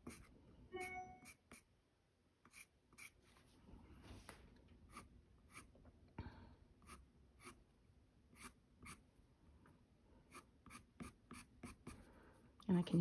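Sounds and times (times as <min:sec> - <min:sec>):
colored pencil scratching paper: 0:00.0 - 0:01.7, 0:02.4 - 0:03.3, 0:04.9 - 0:05.7, 0:06.8 - 0:07.6, 0:08.4 - 0:09.0, 0:10.3 - 0:12.1.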